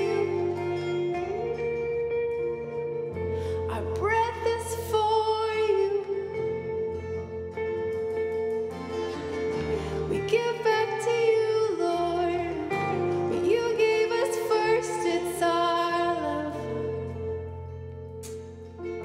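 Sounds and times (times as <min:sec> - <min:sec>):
woman singing: 0:00.0 - 0:01.8, 0:03.2 - 0:07.2, 0:09.6 - 0:17.6
band of guitars and keyboard: 0:00.0 - 0:19.0.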